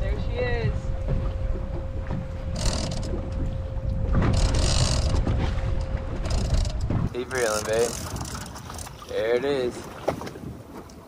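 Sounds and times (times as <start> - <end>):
thin steady hum: 0.0 - 9.1
boat engine rumble: 0.0 - 11.0
wind buffeting microphone: 0.0 - 11.0.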